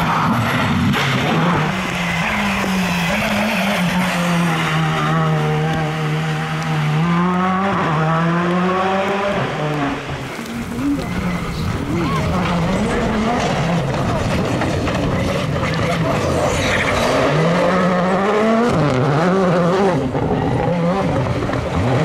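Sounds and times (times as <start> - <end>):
rally car engine running hard: 0.0 - 22.0.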